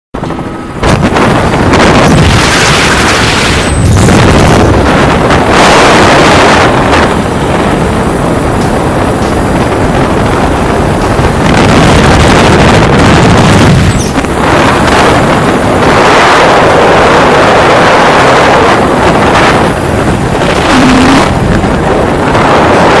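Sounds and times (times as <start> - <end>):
aircraft cabin engine noise: 0.2 - 23.0
wind buffeting microphone: 0.2 - 23.0.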